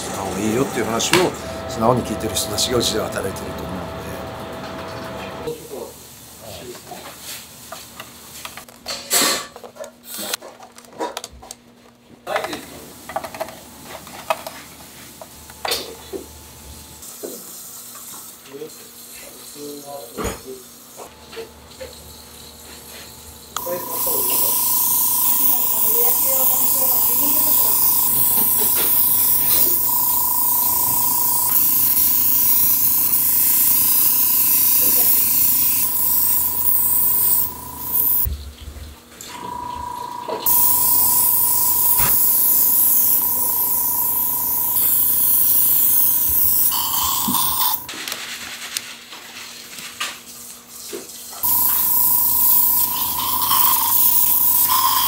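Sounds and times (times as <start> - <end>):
steady low hum: 0.0 - 5.5, 21.2 - 38.4
steady whine: 0.0 - 5.5, 23.5 - 38.3, 39.3 - 47.9, 51.4 - 55.0
airbrush hissing: 23.6 - 38.3, 40.4 - 47.9, 51.4 - 55.0.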